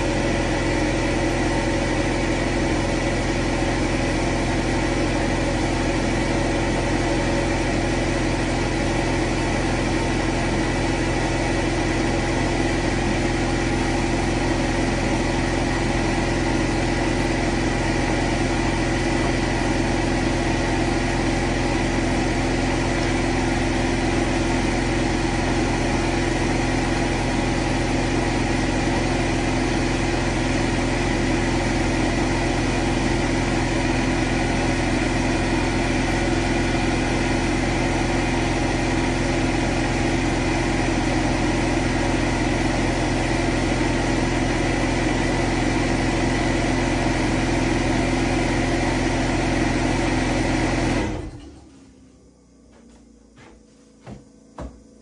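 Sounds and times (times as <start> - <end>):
steady hum: 51.0 - 55.0.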